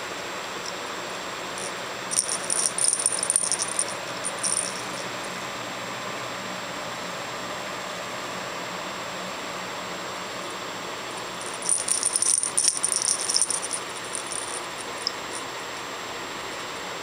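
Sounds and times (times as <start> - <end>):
cat toy jingling: 1.6 - 5.1, 11.2 - 15.4.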